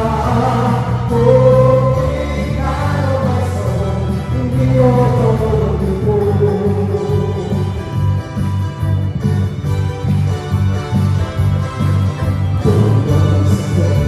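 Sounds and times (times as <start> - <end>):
backing singers: 0.0 - 7.7
male lead singer: 0.0 - 8.4, 12.5 - 14.0
electric bass guitar: 0.0 - 14.0
keyboard: 0.0 - 14.0.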